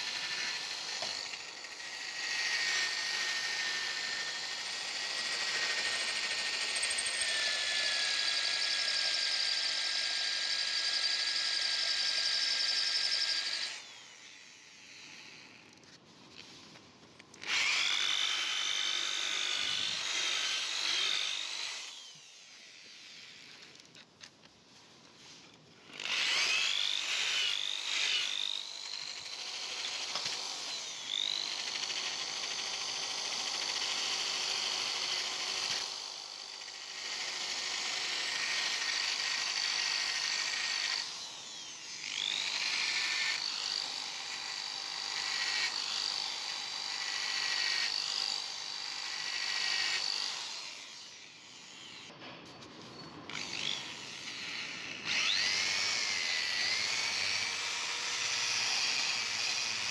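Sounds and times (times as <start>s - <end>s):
drill grinding metal whine: 0.0s - 15.8s, 17.4s - 24.0s, 25.8s - 52.2s, 52.8s - 59.9s.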